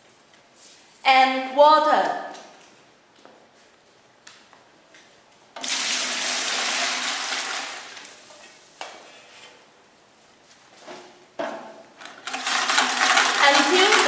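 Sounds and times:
water pouring into bucket: 0:05.6 - 0:08.2, 0:12.2 - 0:14.0.

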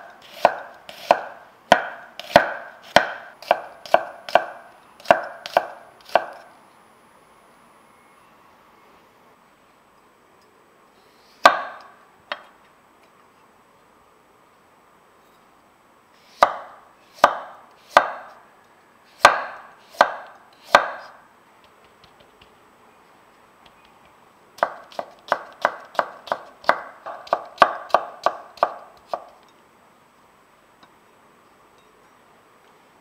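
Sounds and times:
knife chopping on wooden board: 0:00.2 - 0:06.4, 0:16.4 - 0:18.3, 0:19.2 - 0:21.2, 0:24.6 - 0:29.4.

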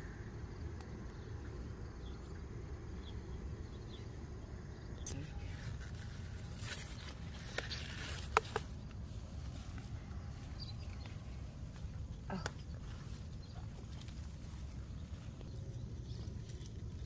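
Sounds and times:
steady low rumble: 0:00.0 - 0:17.0
plant leaves rustling: 0:05.2 - 0:17.0.

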